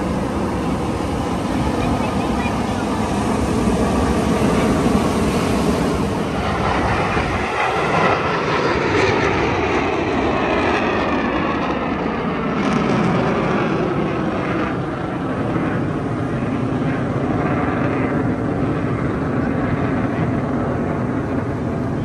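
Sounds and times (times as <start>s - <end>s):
engine rumble: 0.0s - 9.5s
faint rising and falling whines: 0.0s - 9.9s
wind noise: 0.0s - 22.0s.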